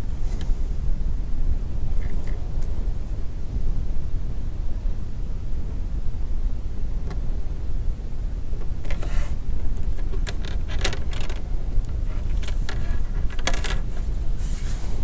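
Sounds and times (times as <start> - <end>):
steady low hum: 0.0 - 15.0
phone frame handling: 12.0 - 14.0.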